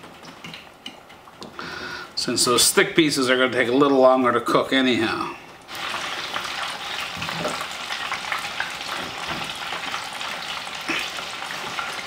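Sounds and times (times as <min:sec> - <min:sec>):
fish deep-frying in bubbling oil: 0:05.7 - 0:12.0.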